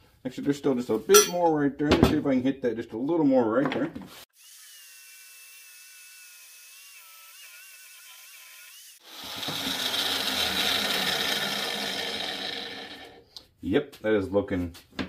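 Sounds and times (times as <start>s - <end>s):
harsh metal grinding: 1.2s - 1.4s
belt sander motor whine: 9.0s - 13.2s.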